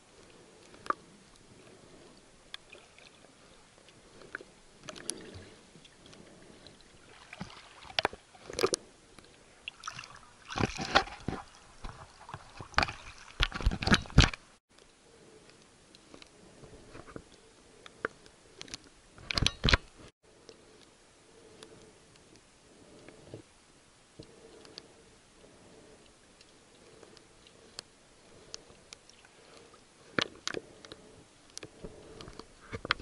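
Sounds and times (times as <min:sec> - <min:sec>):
muffled underwater clicks: 0:00.2 - 0:02.8, 0:26.0 - 0:33.0
water sloshing and splashing: 0:00.2 - 0:14.6.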